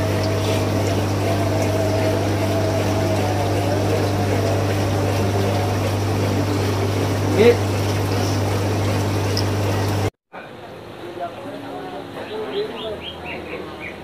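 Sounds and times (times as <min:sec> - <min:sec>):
water bubbling: 0:00.0 - 0:10.1
aquarium pump humming: 0:00.0 - 0:14.0.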